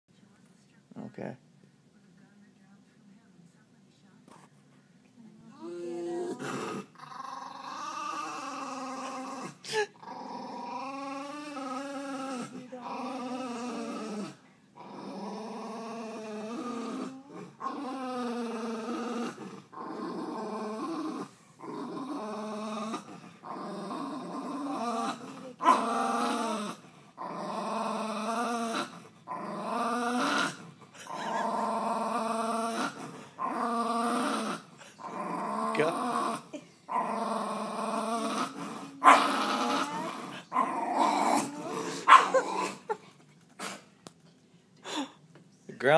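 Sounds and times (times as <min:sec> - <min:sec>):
dog growling: 0:05.5 - 0:43.9.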